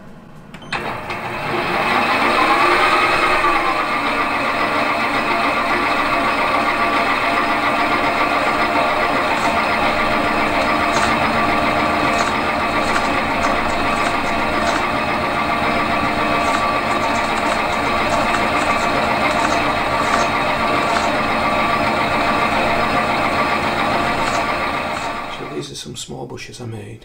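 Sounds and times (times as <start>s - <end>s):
lathe motor whining: 0.7s - 25.6s
tool cutting brass bar: 6.7s - 25.4s.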